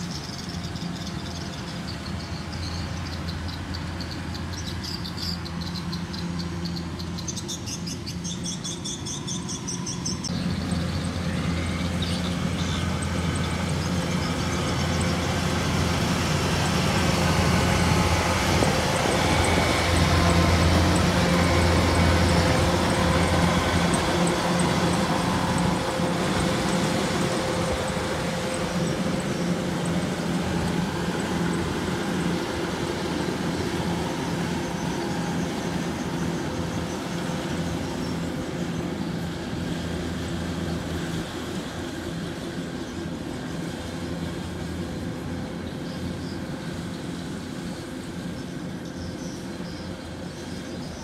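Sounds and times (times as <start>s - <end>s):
diesel engine hum: 0.0s - 51.0s.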